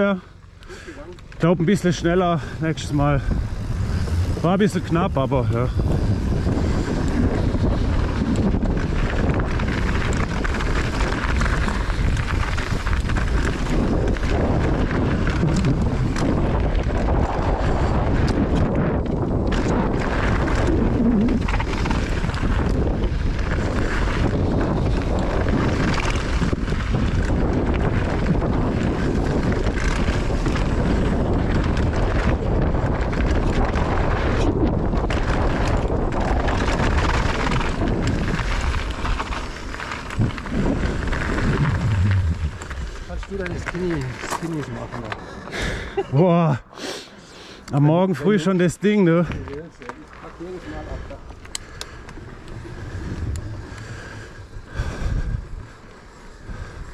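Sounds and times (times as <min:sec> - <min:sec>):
bike rattling: 0:00.0 - 0:46.8, 0:47.7 - 0:56.9
bike tyres on dirt: 0:00.0 - 0:56.9
wind buffeting microphone: 0:01.2 - 0:46.0, 0:50.4 - 0:56.9.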